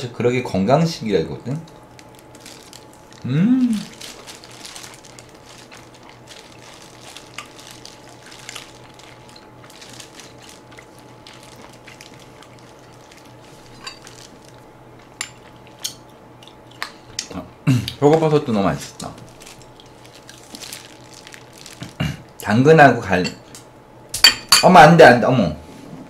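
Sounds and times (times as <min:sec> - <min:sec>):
steady low hum: 0:00.0 - 0:26.0
wet chewing and tearing sounds: 0:01.7 - 0:17.3, 0:18.8 - 0:22.4.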